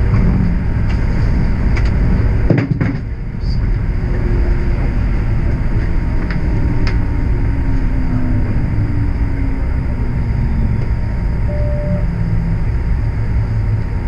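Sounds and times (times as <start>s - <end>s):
streetcar rumbling on rails: 0.0s - 14.0s
faint motor hum: 3.1s - 14.0s.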